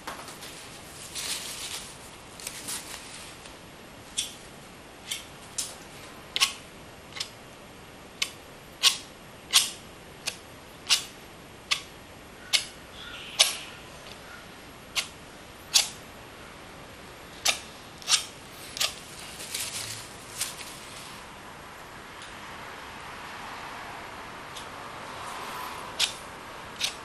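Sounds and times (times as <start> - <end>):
palette knife scraping: 17.5 - 19.0.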